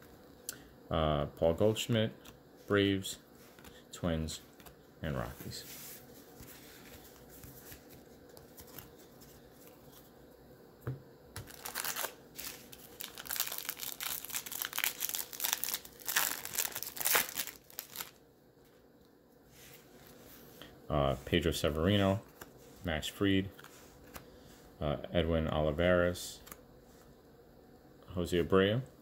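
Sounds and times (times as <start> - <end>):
wrapper tearing and crinkling: 11.4 - 18.2.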